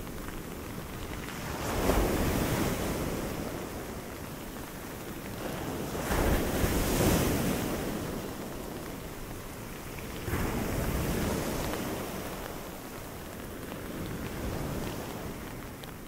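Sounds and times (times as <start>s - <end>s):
waves crashing: 1.3s - 3.8s, 5.3s - 8.7s, 10.0s - 15.8s.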